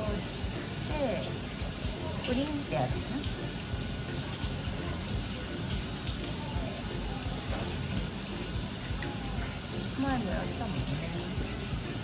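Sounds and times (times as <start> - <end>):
tap water splashing on metal tray: 0.0 - 12.0.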